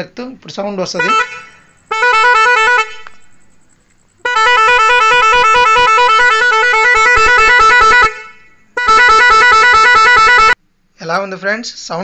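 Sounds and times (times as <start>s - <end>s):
trilling electric horn blasts: 0.8s - 3.6s, 4.2s - 10.6s.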